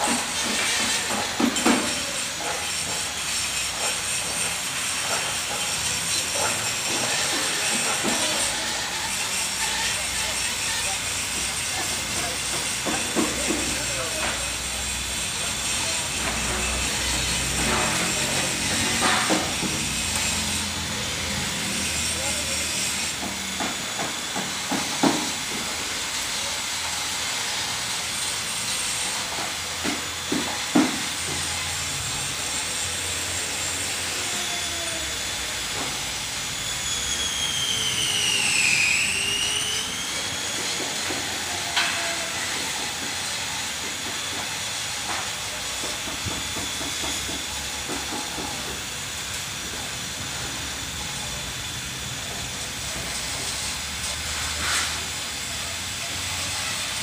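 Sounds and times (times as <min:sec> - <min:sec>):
air hissing: 0:52.9 - 0:55.4.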